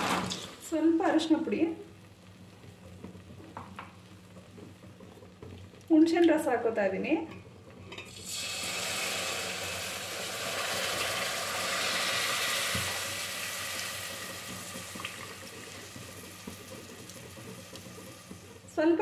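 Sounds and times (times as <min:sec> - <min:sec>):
liquid sizzling in hot oil: 0:07.8 - 0:18.8.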